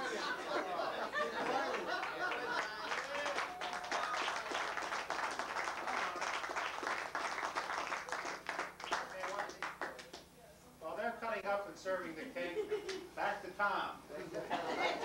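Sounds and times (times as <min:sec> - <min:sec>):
crowd clapping: 0:01.2 - 0:10.3
people talking: 0:10.4 - 0:15.0.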